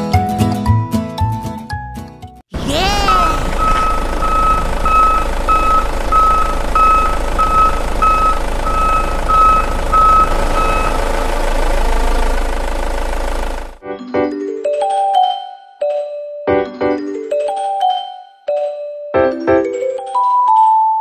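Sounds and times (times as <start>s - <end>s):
truck engine running: 2.6s - 13.8s
truck reversing alarm beeping: 3.0s - 13.6s.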